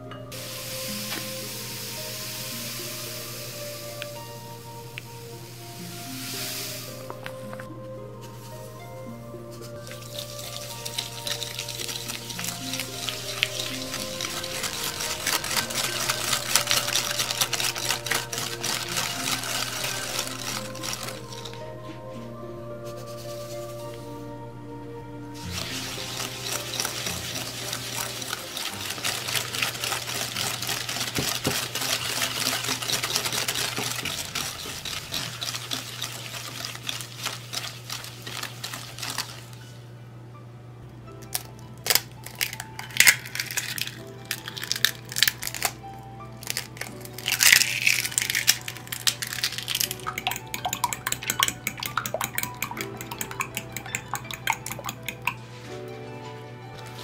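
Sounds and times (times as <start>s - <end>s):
whisk scraping glass bowl: 9.6s - 21.8s, 25.4s - 39.7s, 46.4s - 55.6s
eggs beaten clicks and taps: 9.8s - 21.6s, 25.5s - 39.3s, 41.3s - 45.8s, 46.4s - 55.4s.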